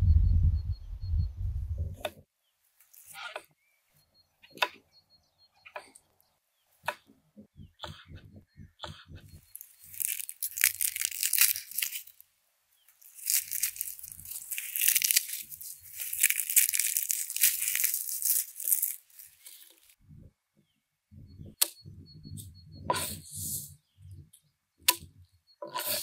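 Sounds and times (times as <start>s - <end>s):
garlic skin crackling and rustling: 2.8s - 3.3s, 9.4s - 12.2s, 12.8s - 20.0s.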